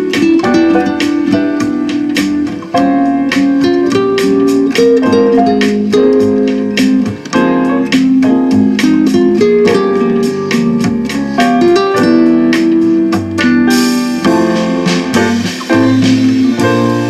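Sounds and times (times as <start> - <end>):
bossa nova with piano and guitar: 0.0 - 17.0.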